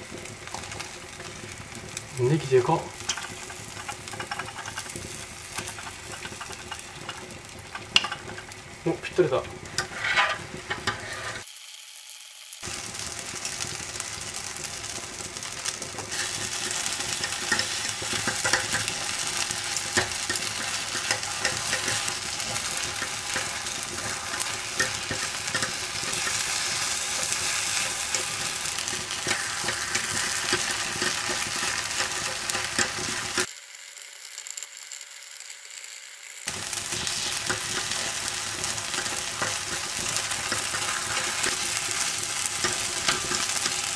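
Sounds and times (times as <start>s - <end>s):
batter sizzling on hot plate: 0.0s - 43.9s
metal picks scraping a plate: 9.8s - 11.4s.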